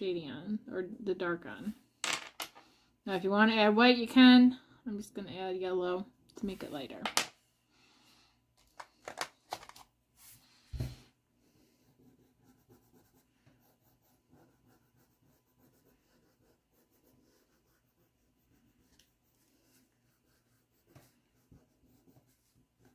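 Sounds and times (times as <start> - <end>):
pastel scratching on paper: 11.8 - 22.9.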